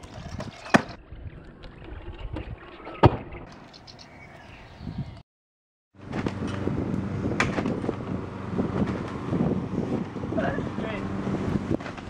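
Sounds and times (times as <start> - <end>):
scooter landing on asphalt: 7.2 - 8.0.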